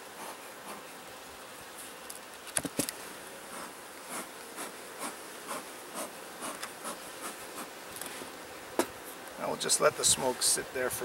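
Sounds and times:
honeybees buzzing: 0:00.0 - 0:11.0
bee smoker bellows puffing: 0:02.7 - 0:10.8.

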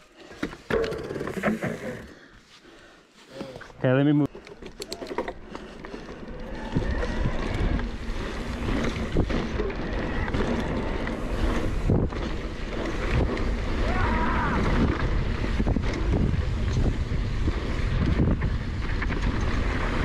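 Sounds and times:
wind rushing over microphone: 0:06.3 - 0:20.0.

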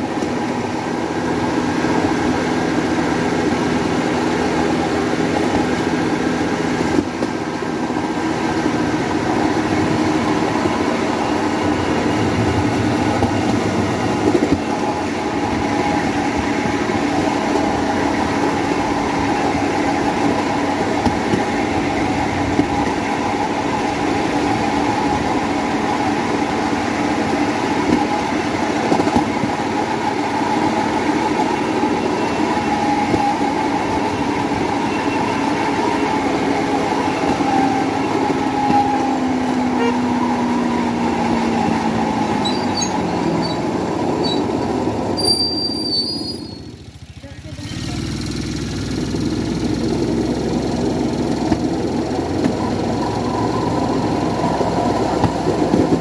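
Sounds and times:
rollers rumbling on rails: 0:00.0 - 0:56.0
motorcycle engine running: 0:46.7 - 0:52.4.

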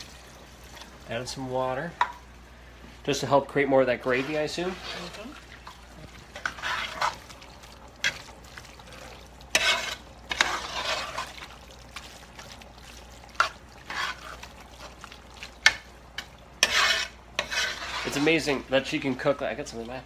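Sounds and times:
spoon scraping through thick stew: 0:04.0 - 0:05.3, 0:06.3 - 0:07.4, 0:08.9 - 0:18.6.

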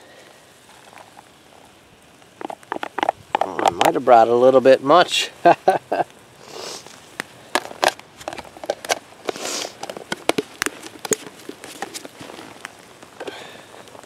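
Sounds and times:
campfire crackling: 0:00.0 - 0:14.0
brief hisses: 0:06.4 - 0:07.0, 0:09.3 - 0:09.8.

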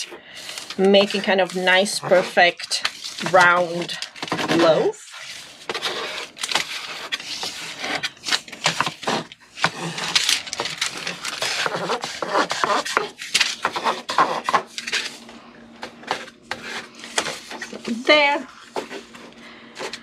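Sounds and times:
dough scraper scraping paper: 0:00.0 - 0:15.3, 0:16.0 - 0:20.0
paper rustling: 0:00.0 - 0:15.3.

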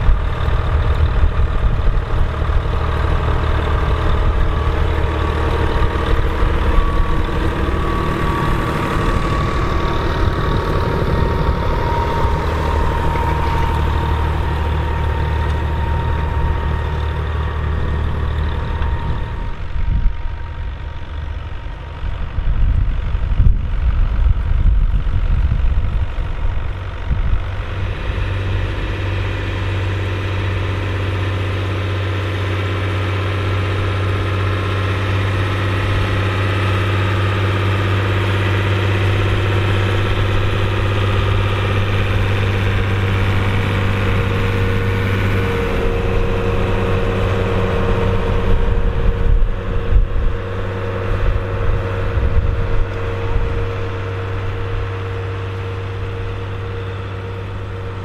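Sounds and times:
low uneven rumble: 0:00.0 - 0:58.0
tractor engine under load: 0:00.0 - 0:58.0.

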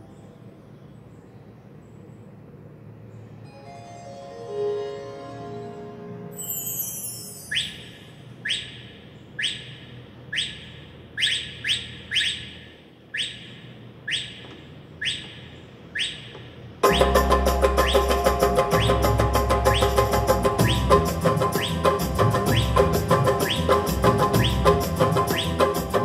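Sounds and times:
keyboard bird chirp effect: 0:06.7 - 0:25.8
keyboard accompaniment with bass and percussion: 0:16.8 - 0:26.0.

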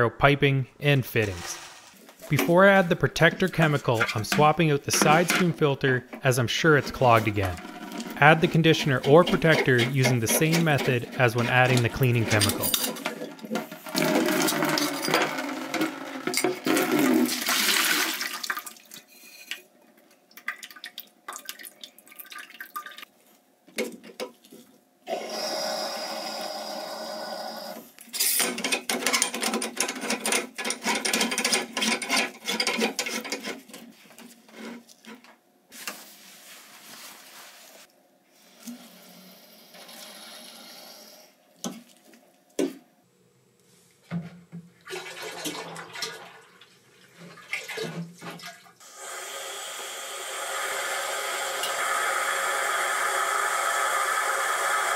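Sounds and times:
water pouring into plastic bucket: 0:13.8 - 0:18.9.

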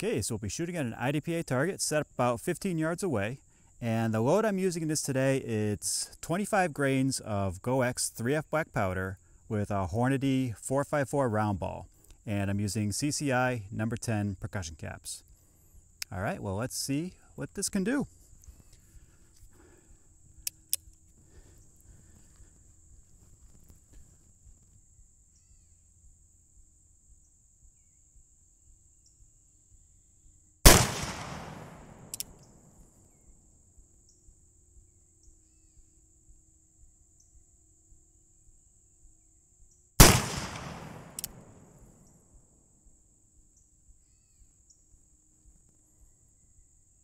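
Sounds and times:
revolver shots echoing: 0:30.7 - 0:32.2, 0:40.0 - 0:41.7.

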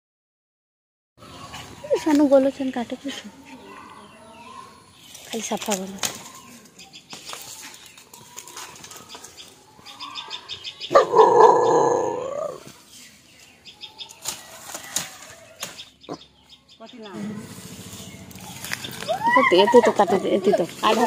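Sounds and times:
dry bamboo leaves rustling: 0:05.0 - 0:09.6, 0:12.5 - 0:16.0, 0:17.2 - 0:21.0.

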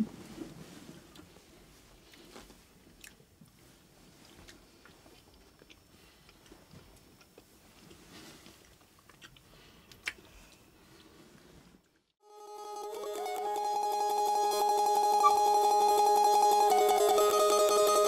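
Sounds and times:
faint chewing: 0:02.0 - 0:11.2.

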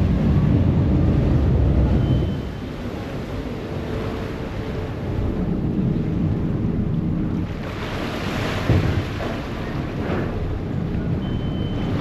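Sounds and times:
ferry engine rumble: 0:00.0 - 0:12.0
propeller wash churning water: 0:00.0 - 0:12.0
wind buffeting microphone: 0:00.0 - 0:12.0.

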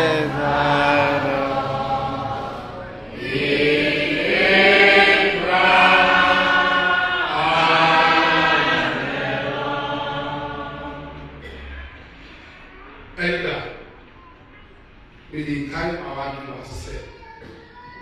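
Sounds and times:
man singing a slow chant: 0:00.0 - 0:02.1.

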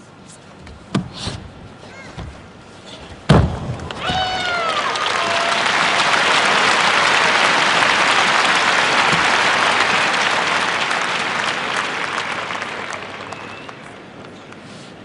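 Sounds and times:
crowd applauding: 0:03.8 - 0:14.6.

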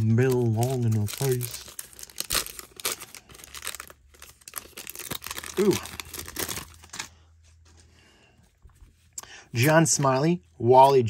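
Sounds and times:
card pack wrapper tearing: 0:00.0 - 0:07.1.

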